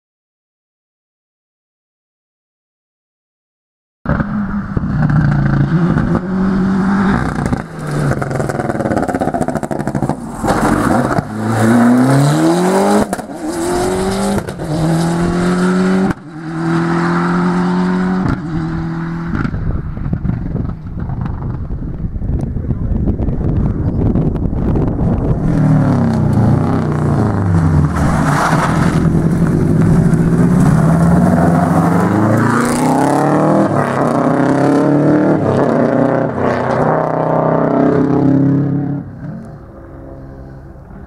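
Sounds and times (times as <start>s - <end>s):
rally car engine revving past: 4.1s - 20.3s, 25.0s - 40.9s.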